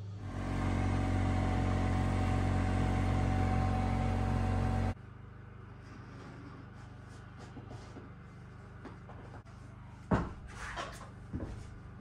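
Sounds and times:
small vehicle engine running: 0.0 - 5.0.

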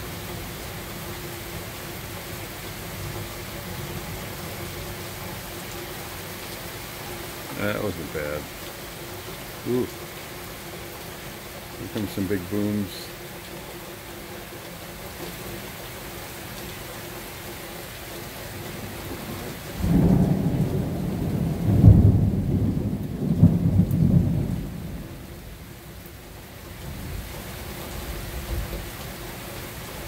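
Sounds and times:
steady rain: 0.0 - 30.0
thunder rumbling: 18.8 - 25.6.

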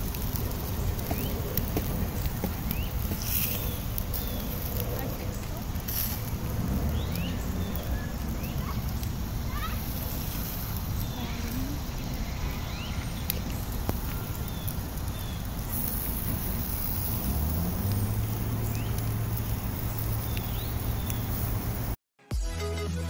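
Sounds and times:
wind noise on microphone: 0.0 - 22.0
electronic music: 22.2 - 23.0.

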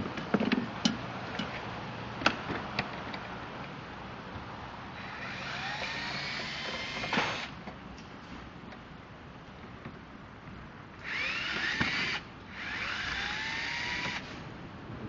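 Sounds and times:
power drill whining: 5.0 - 7.5, 11.0 - 14.3.

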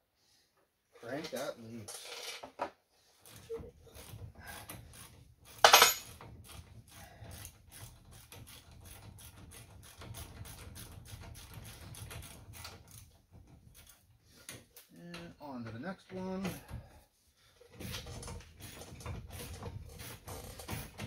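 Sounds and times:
ratchet wrench clicking: 4.0 - 13.1.

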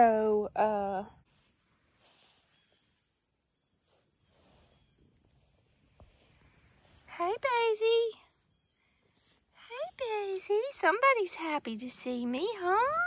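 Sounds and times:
crickets chirring: 0.9 - 13.0.

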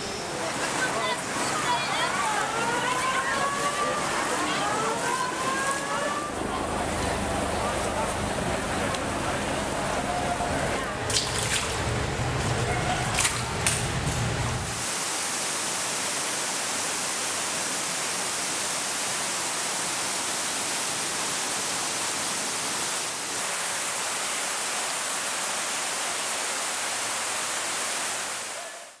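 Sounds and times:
water rushing down stairs: 0.3 - 8.2, 10.1 - 14.0.

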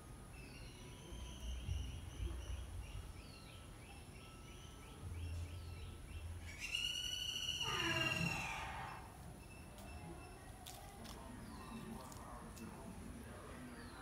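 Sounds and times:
loud high bird call: 6.4 - 9.1.

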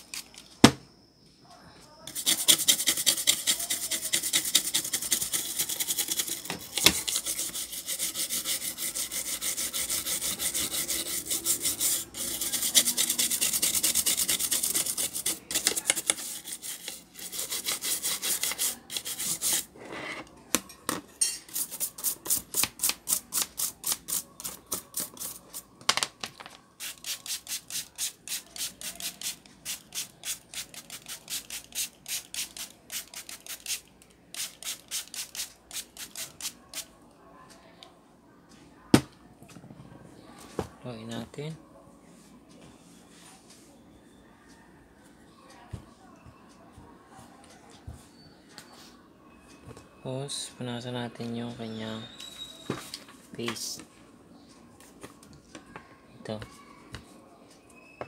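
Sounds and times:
toothbrush scrubbing circuit board: 2.1 - 19.7, 21.5 - 25.6, 26.8 - 33.8, 34.4 - 36.6.

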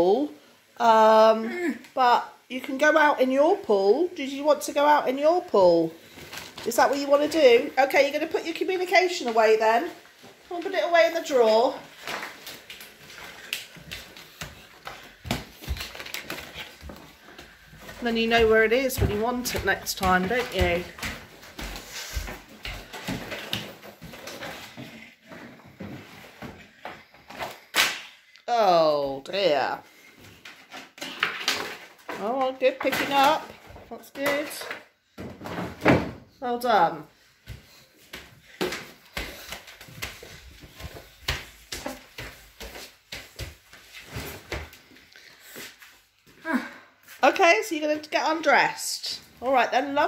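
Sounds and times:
footsteps: 5.6 - 27.6, 37.1 - 46.4.

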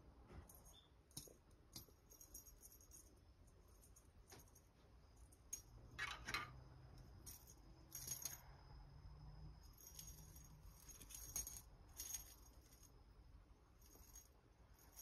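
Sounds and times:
faint low hum: 0.0 - 15.0
cat toy jingling: 9.6 - 13.0, 13.8 - 15.0.

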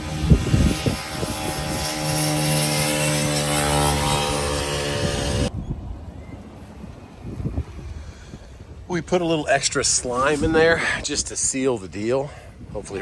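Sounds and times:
vehicle engine droning: 0.0 - 8.9.

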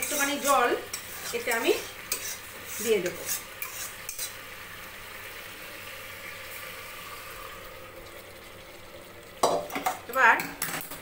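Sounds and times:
food sizzling in a pot: 0.0 - 11.0
water pouring: 4.8 - 10.7.

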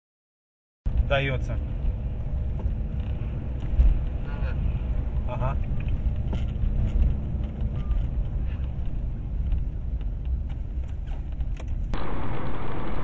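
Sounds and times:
car engine rumble: 0.9 - 13.0
tyres on road: 0.9 - 13.0.

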